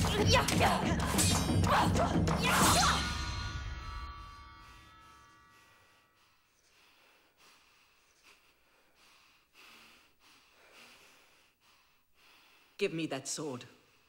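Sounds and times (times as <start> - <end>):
faint breaths: 5.4 - 12.9.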